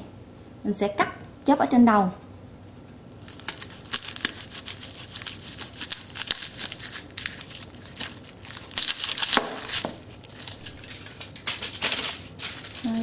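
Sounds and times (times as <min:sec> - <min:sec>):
knife cutting garlic skin crunching: 0:03.2 - 0:11.6
aluminium foil crinkling: 0:03.2 - 0:13.0.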